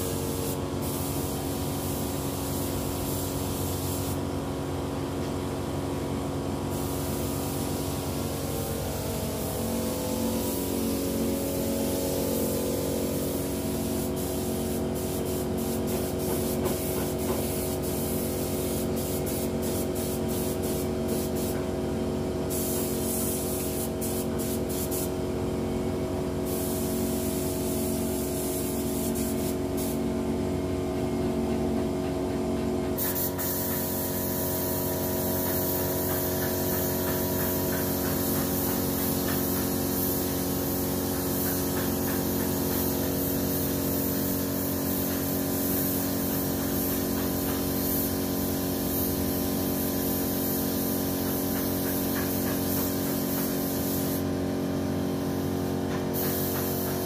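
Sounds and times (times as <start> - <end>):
paint spray gun hissing: 0.0 - 4.3, 6.7 - 25.3, 26.4 - 30.2, 33.0 - 57.0
air compressor humming: 0.0 - 57.0.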